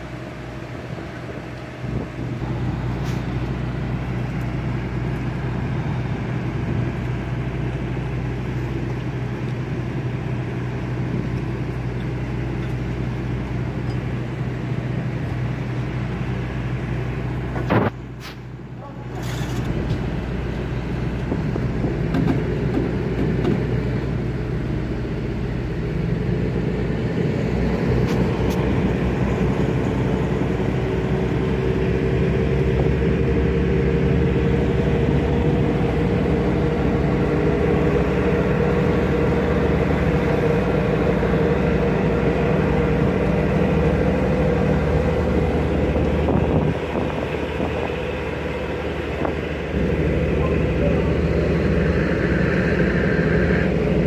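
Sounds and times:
diesel engine droning: 0.0 - 54.0.

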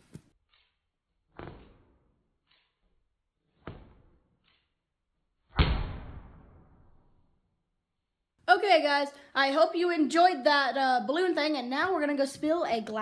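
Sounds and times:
balloon popping bang: 5.5 - 7.0.

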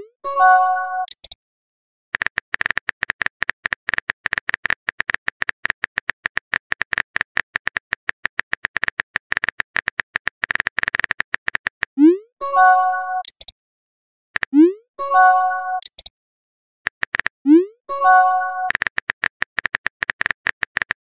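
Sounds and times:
phone keyboard tapping: 2.2 - 11.9, 16.9 - 17.4, 18.3 - 21.0.

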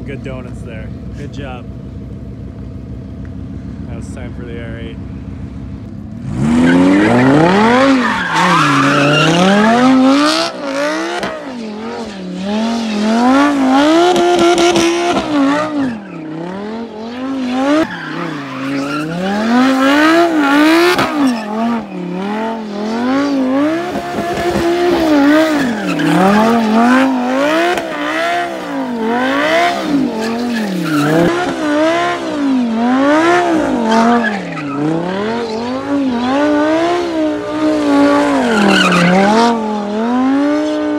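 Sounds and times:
car engine revving: 0.0 - 40.9
tyres squealing: 6.6 - 10.3, 17.5 - 22.2, 24.4 - 28.1, 38.2 - 39.4.

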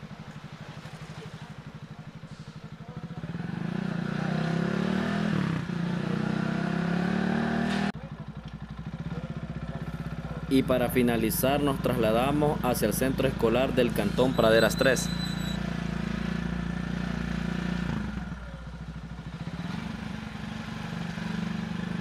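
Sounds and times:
motorcycle engine running: 0.0 - 22.0.

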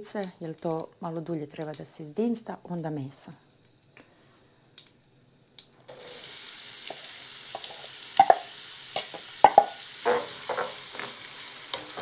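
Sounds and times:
onion sizzling in pan: 5.9 - 12.0
metal bowl knocking on pan: 7.6 - 10.9.

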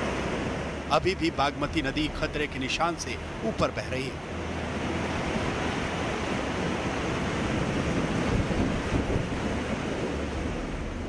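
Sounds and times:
river rushing: 0.0 - 11.0
wind on microphone: 4.6 - 11.0.

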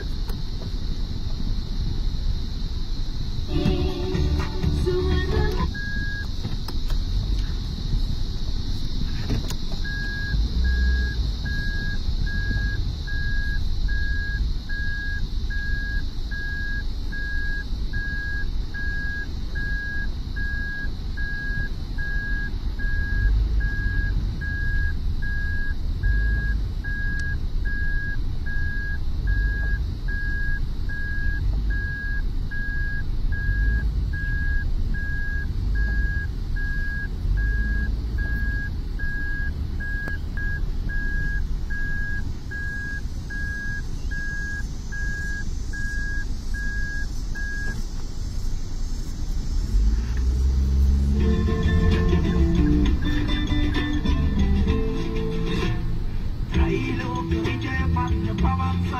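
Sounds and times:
car engine rumble: 0.0 - 58.9
road noise: 0.0 - 58.9
reverse warning beeps: 3.5 - 6.4, 9.8 - 47.8.

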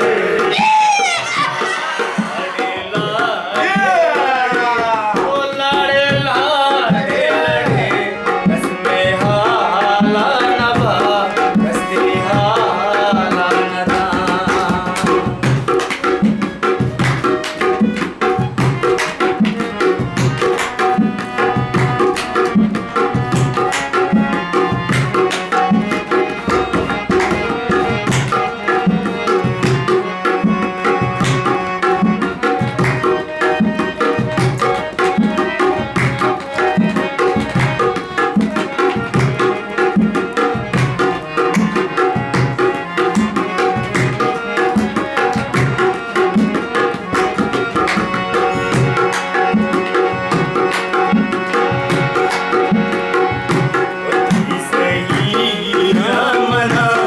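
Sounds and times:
person singing: 0.0 - 15.4, 54.0 - 57.0
harmonium melody: 0.0 - 57.0.

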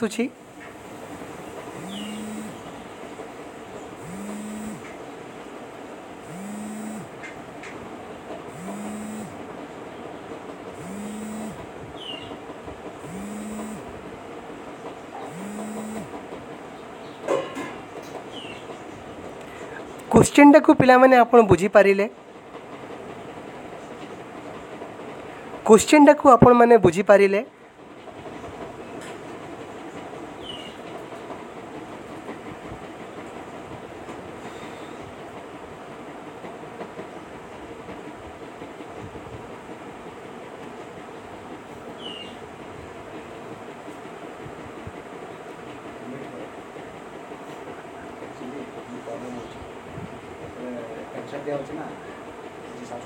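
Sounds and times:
machine hum rising and falling: 1.7 - 2.8, 4.0 - 5.0, 6.2 - 7.2, 8.5 - 9.4, 10.8 - 11.7, 13.0 - 14.0, 15.3 - 16.1
high chirp: 1.8 - 2.7.

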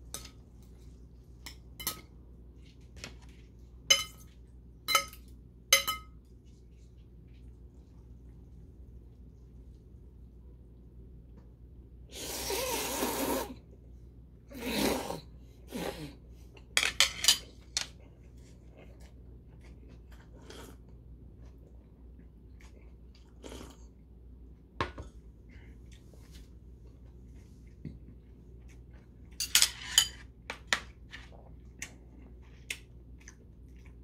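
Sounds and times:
man slurping noodles: 12.1 - 13.6
chewing sounds: 31.0 - 34.0.

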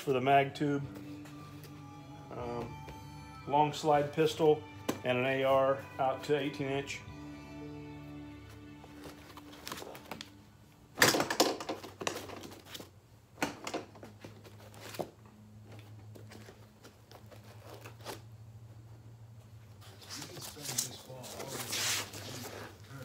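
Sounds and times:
knocks and rustles of handling: 11.0 - 18.2.

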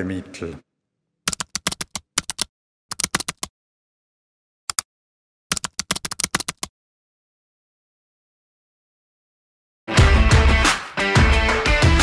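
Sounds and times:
keyboard typing clicks: 1.3 - 3.5, 5.5 - 6.7.

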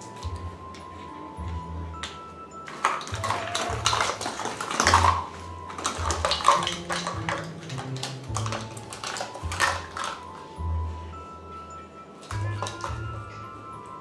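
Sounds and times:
measuring spoons rattling and clicking: 2.7 - 10.3.

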